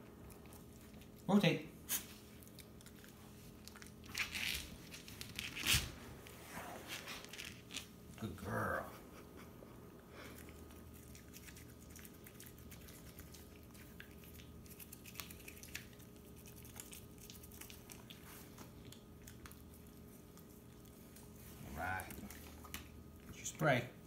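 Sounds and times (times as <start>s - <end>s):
toothbrush scrubbing teeth: 10.5s - 20.6s.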